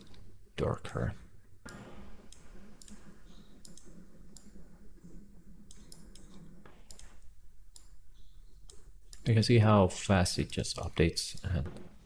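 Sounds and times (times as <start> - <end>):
computer mouse clicking: 1.6 - 4.7, 5.6 - 9.3.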